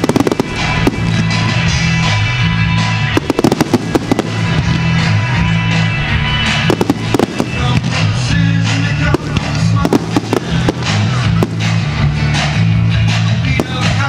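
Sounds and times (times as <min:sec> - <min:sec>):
fireworks bangs: 0:00.0 - 0:12.1, 0:13.5 - 0:14.0
music with low bass line: 0:00.0 - 0:14.0.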